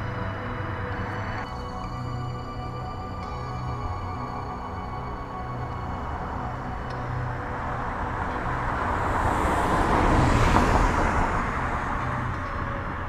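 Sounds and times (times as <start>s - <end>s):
road vehicle passing by: 5.1s - 13.0s.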